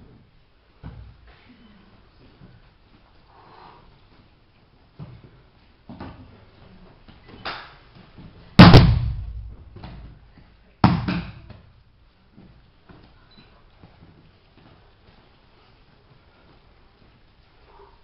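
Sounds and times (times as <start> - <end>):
body slamming onto mats: 8.6 - 10.1.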